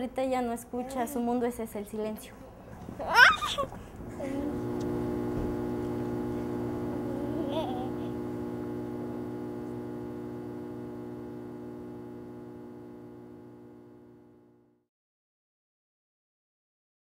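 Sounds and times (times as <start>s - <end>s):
electronic drone: 4.3s - 14.6s.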